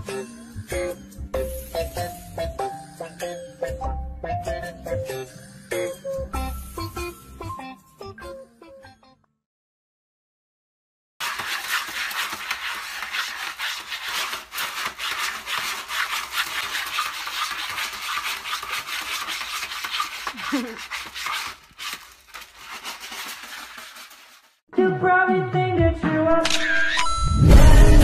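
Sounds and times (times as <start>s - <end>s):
cat scratching in litter tray: 11.2s - 24.6s.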